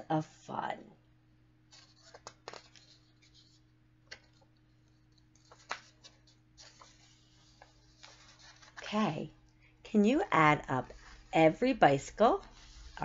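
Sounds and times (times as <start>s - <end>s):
faint steady hum: 0.0s - 13.0s
paper book clicks and rustles: 1.7s - 8.9s.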